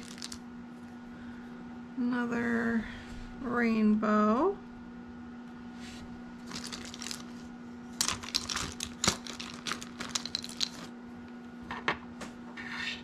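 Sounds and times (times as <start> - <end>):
plastic charms clicking together: 8.0 - 10.9.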